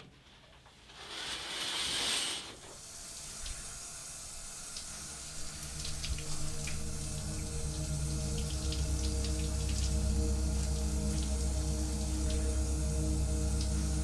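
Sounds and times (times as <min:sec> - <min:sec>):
shower water hissing: 0:00.8 - 0:14.0
low music drone: 0:03.4 - 0:14.0
water droplet ticks: 0:05.6 - 0:11.5.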